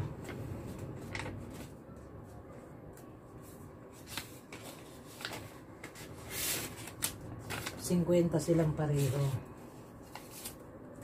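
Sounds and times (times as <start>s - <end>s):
paper rustling: 3.0s - 11.0s
paper crinkles: 3.9s - 8.0s, 10.0s - 11.0s.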